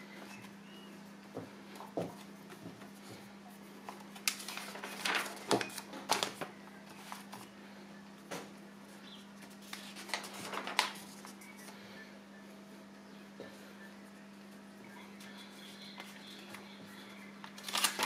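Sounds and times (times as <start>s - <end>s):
steady low hum: 0.0s - 18.0s
paper pages rustling: 3.8s - 7.5s, 9.4s - 11.8s, 17.4s - 18.0s.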